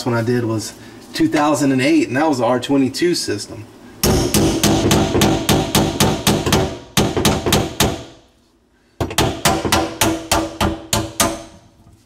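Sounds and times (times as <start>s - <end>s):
hammer striking metal ring: 4.0s - 8.1s.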